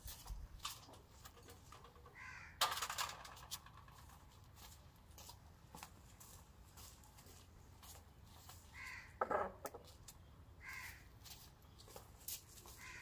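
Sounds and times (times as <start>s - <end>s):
birds calling: 2.0s - 2.6s, 8.6s - 9.4s, 10.2s - 13.0s.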